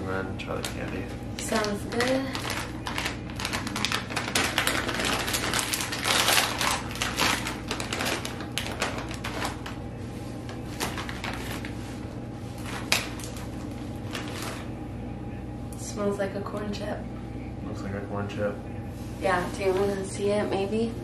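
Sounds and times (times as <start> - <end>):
plastic bag crackling: 0.5 - 14.7.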